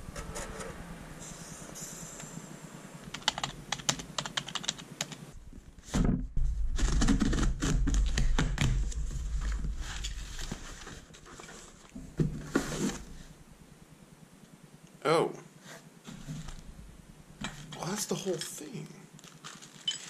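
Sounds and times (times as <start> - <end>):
keyboard typing: 3.1 - 5.2
cardboard flaps scraping and rustling: 5.7 - 13.3.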